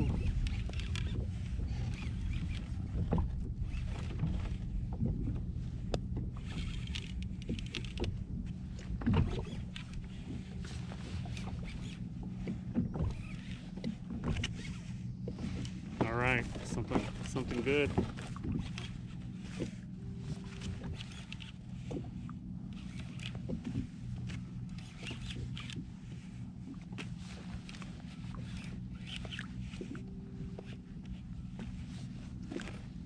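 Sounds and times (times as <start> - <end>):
water sloshing against hull: 0.0 - 33.0
small knocks and clicks: 5.9 - 10.5.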